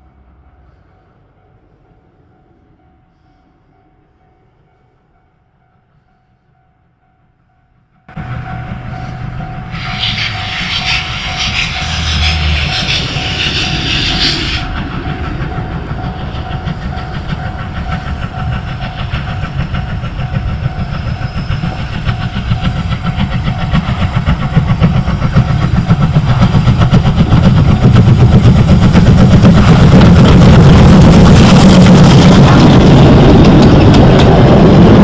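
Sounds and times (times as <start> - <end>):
steam locomotive exhaust beats: 8.1 - 35.0
steam hiss: 9.0 - 34.9.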